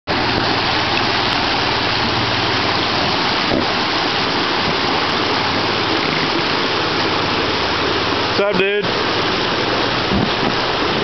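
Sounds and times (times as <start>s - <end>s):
rocky river rushing over stones: 0.1s - 11.0s.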